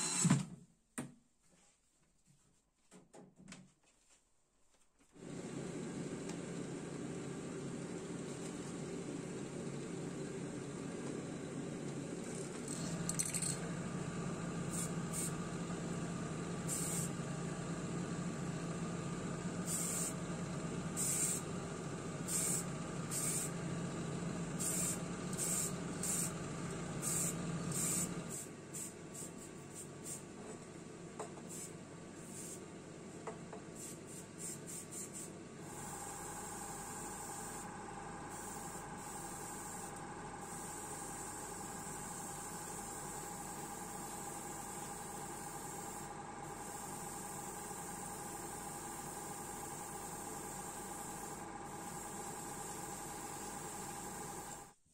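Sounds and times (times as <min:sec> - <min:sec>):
airbrush hiss: 0:16.7 - 0:17.1, 0:19.7 - 0:20.2, 0:21.0 - 0:21.4, 0:22.2 - 0:23.5, 0:24.6 - 0:26.3, 0:27.0 - 0:30.2, 0:31.5 - 0:32.6, 0:33.8 - 0:35.3, 0:38.3 - 0:54.0
spray paint can hissing: 0:16.7 - 0:17.1, 0:19.6 - 0:20.2, 0:21.0 - 0:21.4, 0:22.3 - 0:23.5, 0:24.6 - 0:26.3, 0:27.0 - 0:30.2, 0:33.8 - 0:35.3.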